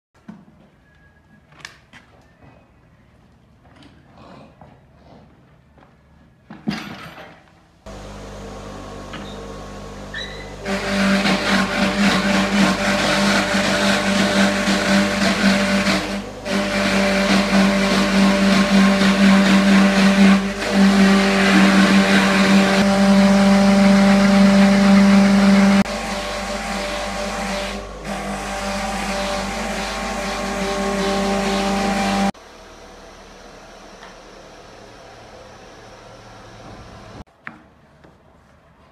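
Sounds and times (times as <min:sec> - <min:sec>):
workshop machine motor humming: 0:07.9 - 0:37.3.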